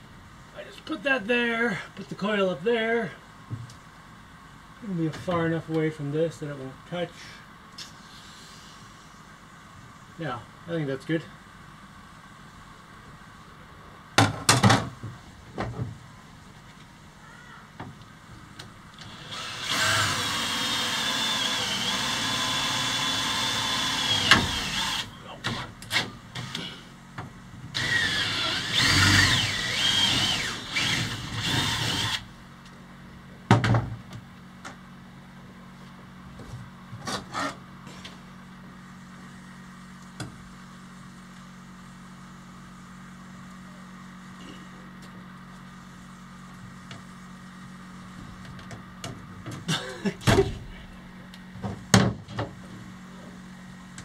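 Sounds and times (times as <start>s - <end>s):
cordless drill whining: 19.0s - 25.1s, 27.8s - 32.3s.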